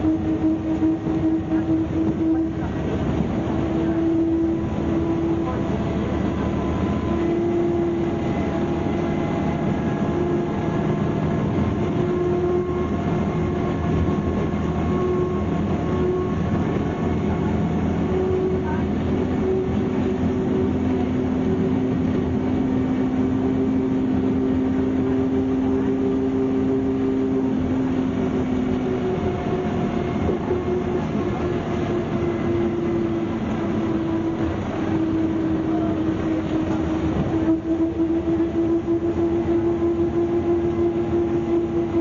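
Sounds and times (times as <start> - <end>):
bus engine drone: 0.0 - 42.0
drivetrain whine: 0.0 - 42.0.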